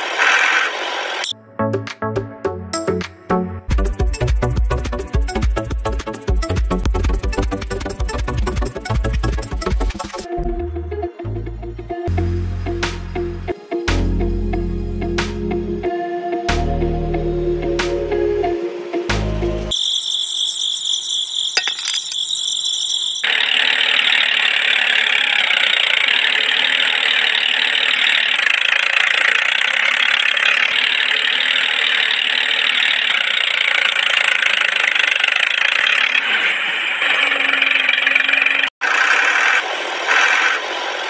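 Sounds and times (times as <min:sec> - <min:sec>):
small motor running: 0:00.0 - 0:01.3, 0:23.1 - 0:41.0.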